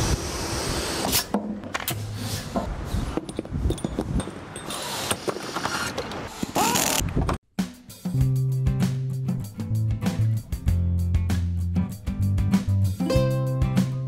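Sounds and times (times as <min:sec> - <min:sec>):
metal valve parts clanking: 0:03.2 - 0:05.2.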